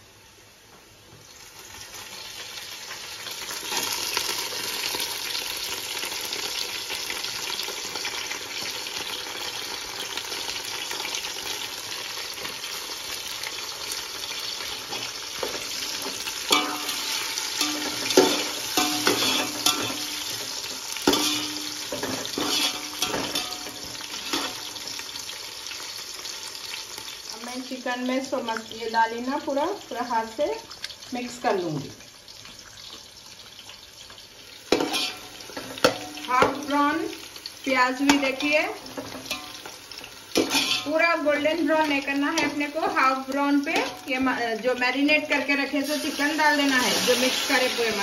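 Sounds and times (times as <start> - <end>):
onions sizzling in hot oil: 0.0 - 48.0
metal spoon scraping a pot: 16.5 - 20.4, 21.0 - 24.6, 34.8 - 35.3, 40.4 - 40.9.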